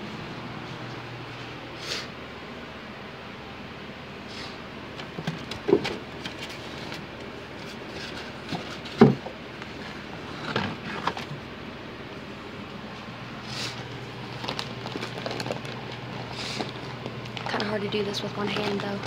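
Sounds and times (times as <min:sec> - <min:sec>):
items knocking on shelf: 0:08.6 - 0:09.4
plastic packaging crinkling: 0:13.8 - 0:19.0.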